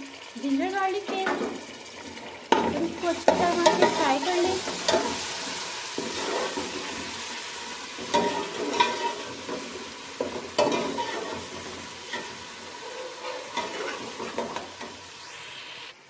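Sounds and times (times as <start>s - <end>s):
food sizzling in hot oil: 0.0s - 16.0s
metal spatula scraping pot: 2.5s - 7.2s, 8.0s - 14.6s.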